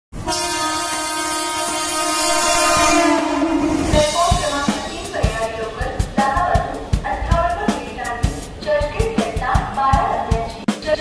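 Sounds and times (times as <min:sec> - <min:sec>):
train horn blowing: 0:00.2 - 0:04.3
music with drum beat: 0:02.8 - 0:11.0.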